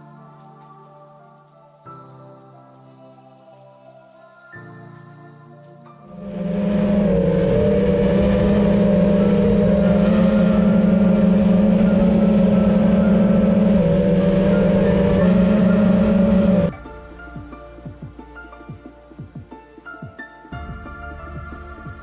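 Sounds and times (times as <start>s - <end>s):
drone motors whining: 6.1s - 16.7s.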